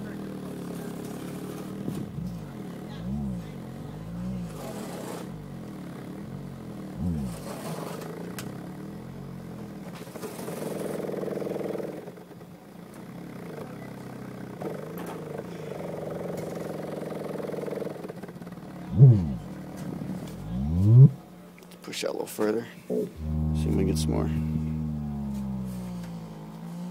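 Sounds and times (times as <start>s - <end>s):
subwoofer playing low bass tones: 2.2s - 4.6s, 7.0s - 7.4s, 18.9s - 19.6s, 20.3s - 21.2s, 23.2s - 26.9s.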